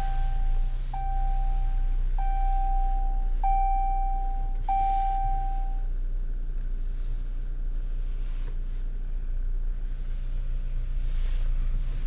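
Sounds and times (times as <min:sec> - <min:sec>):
dashboard warning chime: 0:00.0 - 0:05.9
low steady hum: 0:00.0 - 0:12.0.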